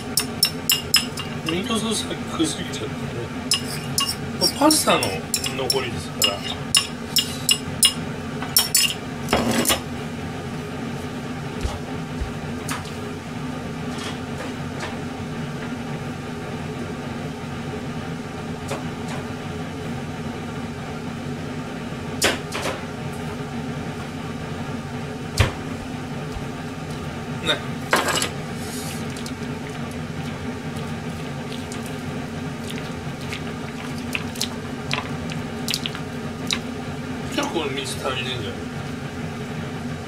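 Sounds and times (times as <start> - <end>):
dishes and cutlery clinking: 0.0 - 1.6, 3.5 - 9.8, 28.0 - 28.4
steady low hum: 0.0 - 40.0.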